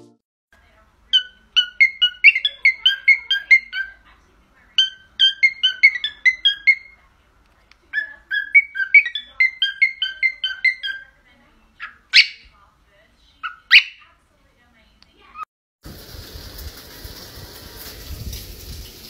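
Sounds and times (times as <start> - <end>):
cockatiel whistling: 8.0 - 11.0, 11.8 - 12.5.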